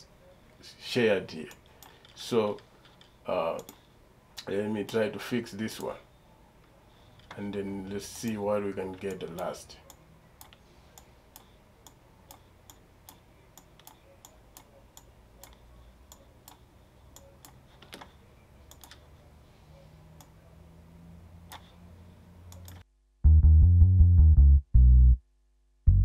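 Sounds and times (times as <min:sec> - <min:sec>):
computer mouse clicks: 0:01.5 - 0:03.8, 0:09.0 - 0:18.1, 0:18.7 - 0:19.1, 0:21.5 - 0:21.7, 0:22.5 - 0:22.8.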